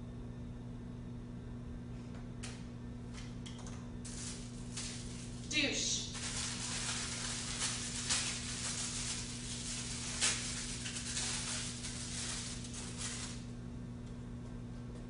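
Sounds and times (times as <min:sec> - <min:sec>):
low electrical hum: 0:00.0 - 0:15.0
wrapper crinkling and rustling: 0:04.0 - 0:13.5.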